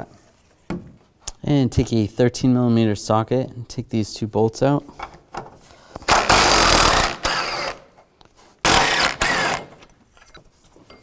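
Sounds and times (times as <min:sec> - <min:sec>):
impact gun running: 0:06.1 - 0:07.8, 0:08.6 - 0:09.9.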